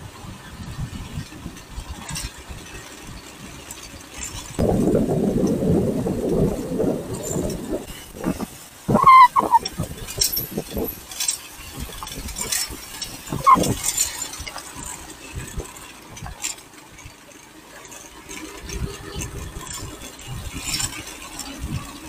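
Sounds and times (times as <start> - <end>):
motorcycle engine rumble: 0.0 - 22.0
short pitch-bending call: 8.9 - 9.7.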